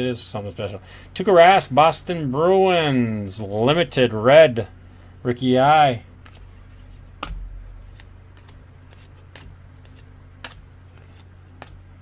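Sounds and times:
steady low hum: 0.0 - 12.0
cards clicking and tapping: 6.2 - 12.0.

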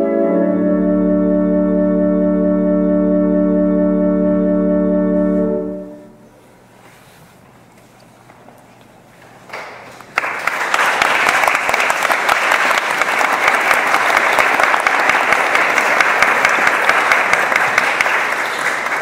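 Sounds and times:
audience applauding: 9.5 - 19.0.

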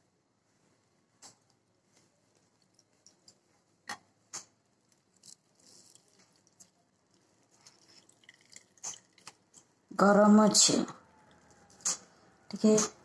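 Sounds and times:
wet cloth being twisted: 4.8 - 9.7.

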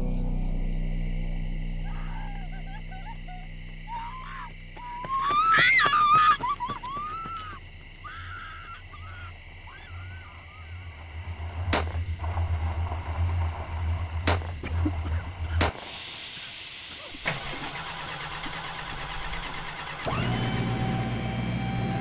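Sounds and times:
insect chirring: 0.1 - 19.9
animal wavering gliding calls: 1.8 - 11.0
car engine rumble: 10.8 - 15.9.

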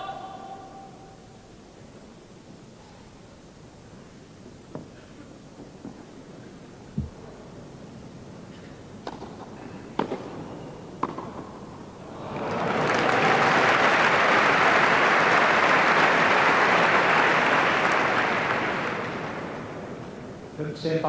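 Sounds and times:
tennis ball hitting racket: 10.0 - 10.3, 11.0 - 11.5
crowd applauding: 12.1 - 20.4.

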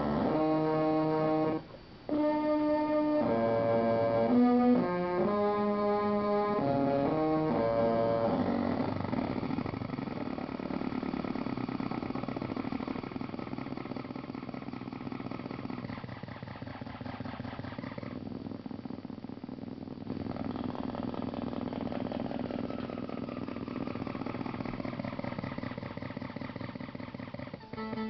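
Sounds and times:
buzzy electronic drones: 0.0 - 28.0
rough electronic noise: 0.0 - 28.0.

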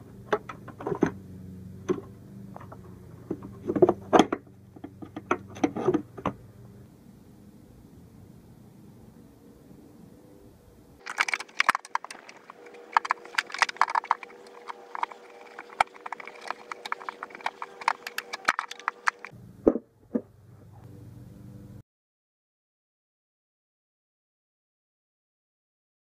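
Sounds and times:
metallic clicks and clacks: 11.0 - 19.3.

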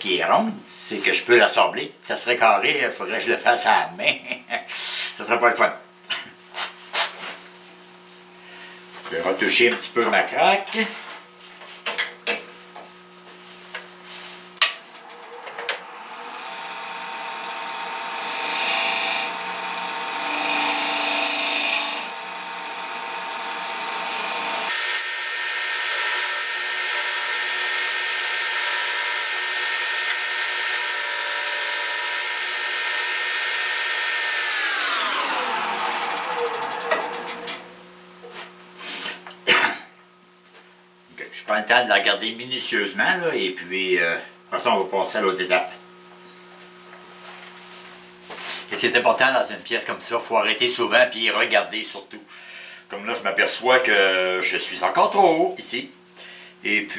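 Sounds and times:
wood lathe whining: 14.5 - 38.2
tool rasping on spinning wood: 14.9 - 37.5.

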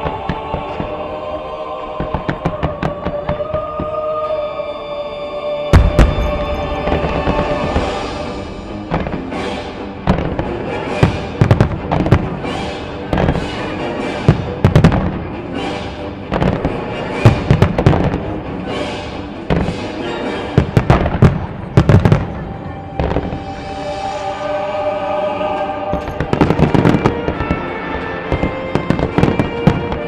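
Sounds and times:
music playing: 0.0 - 30.0
fireworks bangs: 5.7 - 22.4, 23.0 - 23.7, 25.9 - 30.0.

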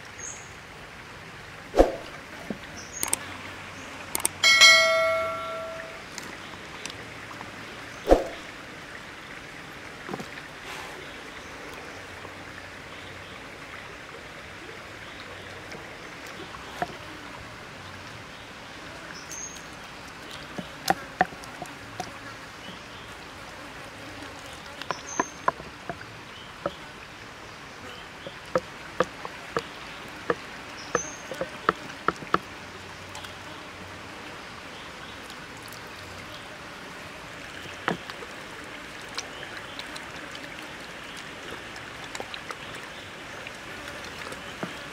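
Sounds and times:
stream running: 0.0 - 44.9
cleaver chopping on wooden board: 31.0 - 32.4.

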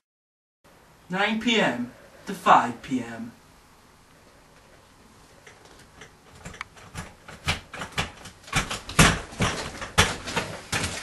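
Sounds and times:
chair creaking and knocking: 5.4 - 11.0
irregular clicks and knocks: 5.4 - 11.0.

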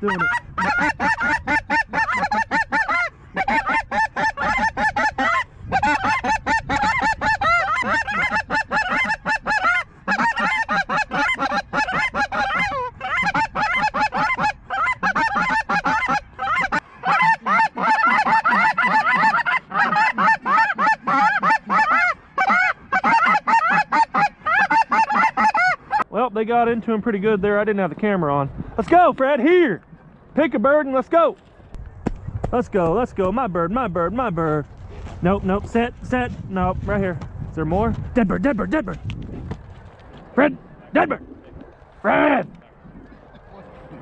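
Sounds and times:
geese honking chorus: 0.0 - 26.1.

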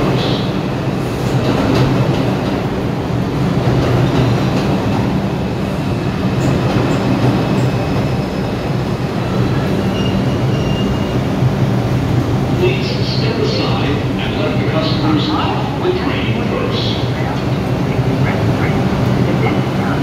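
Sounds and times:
subway train braking: 0.0 - 20.0
wheels rumbling on rail: 0.0 - 20.0
faint high brake squeal: 9.8 - 11.2.

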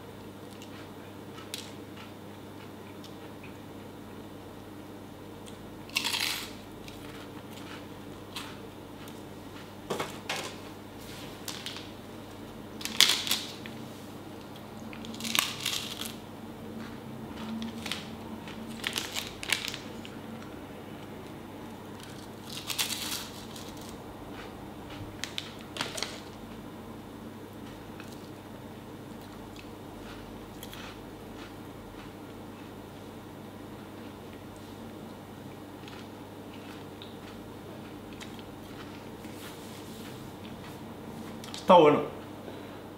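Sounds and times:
crunchy biscuit chewing: 0.4 - 3.6, 5.4 - 9.9, 14.5 - 20.6, 21.6 - 26.4, 29.1 - 32.8, 35.7 - 41.6
plastic wrapper crinkling: 18.7 - 19.9.

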